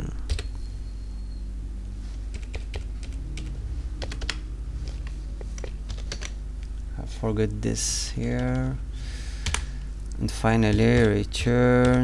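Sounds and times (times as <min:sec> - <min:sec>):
steady low hum: 0:00.0 - 0:12.0
typing on computer keyboard: 0:00.3 - 0:00.5, 0:02.3 - 0:04.4, 0:05.0 - 0:06.4, 0:09.4 - 0:09.7, 0:10.6 - 0:12.0.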